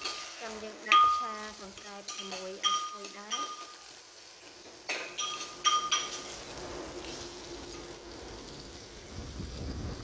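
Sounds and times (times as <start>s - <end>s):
herbs sizzling in oil: 0.0s - 10.0s
metal ladle clinking on clay pot: 2.1s - 3.8s, 4.9s - 6.2s.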